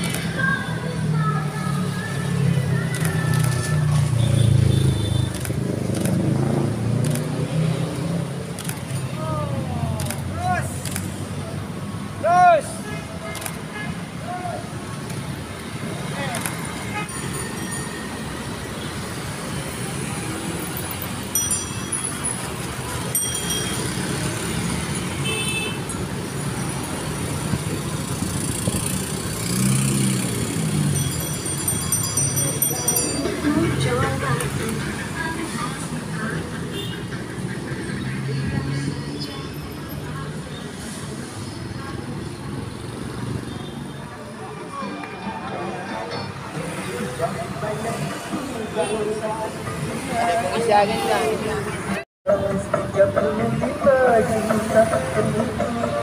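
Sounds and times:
motorcycles and cars passing: 0:00.0 - 0:56.0.

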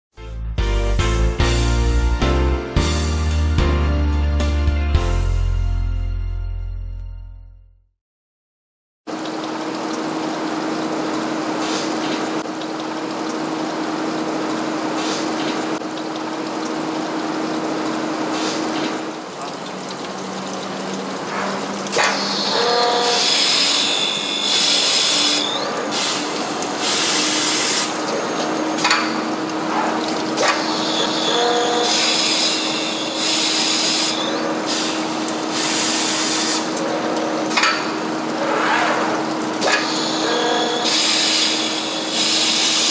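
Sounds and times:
coolant water hiss: 0:09.6 - 0:42.9
drill spindle humming: 0:22.2 - 0:28.0.

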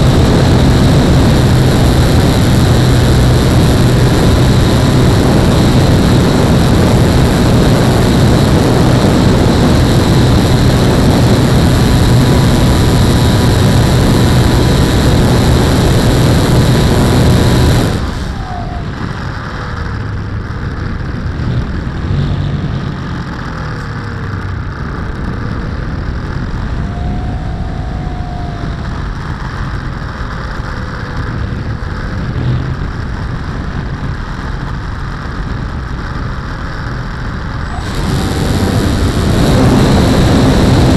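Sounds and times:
wind rushing: 0:00.0 - 0:20.0, 0:24.8 - 0:34.2, 0:37.6 - 0:40.9
model plane motor and propeller: 0:00.0 - 0:21.3, 0:23.0 - 0:40.9.

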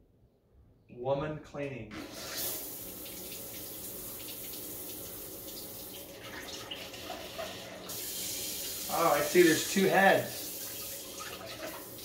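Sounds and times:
water spraying onto a hand: 0:07.4 - 0:12.0.

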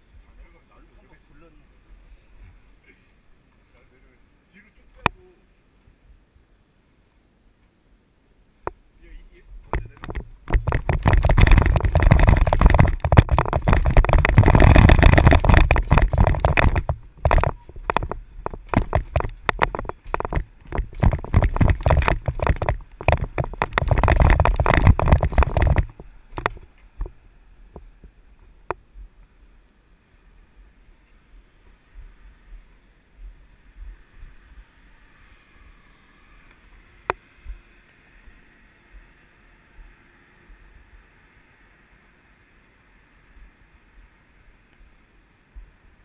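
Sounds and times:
scattered clicks: 0:09.7 - 0:27.1.

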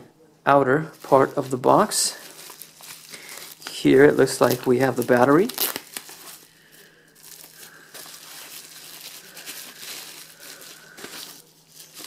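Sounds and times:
bubble wrap crinkling: 0:00.9 - 0:12.0.

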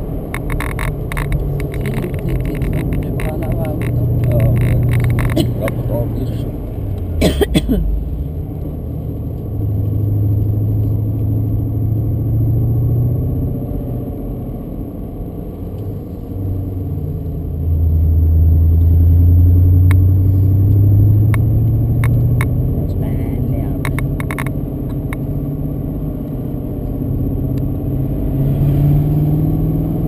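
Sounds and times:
car engine running: 0:00.0 - 0:30.0.

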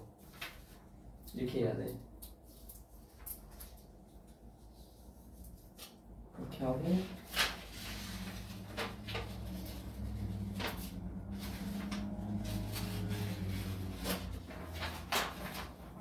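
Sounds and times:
low room hum: 0:00.0 - 0:16.0
paper taps and rustles: 0:13.9 - 0:16.0.

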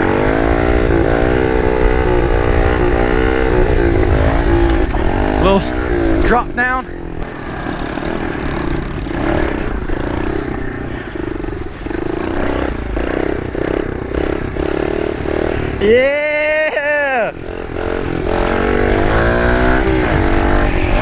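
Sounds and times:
wind noise: 0:00.0 - 0:06.6, 0:18.6 - 0:21.0
small motorbike engine running: 0:01.8 - 0:21.0
person shouting: 0:15.8 - 0:17.4.

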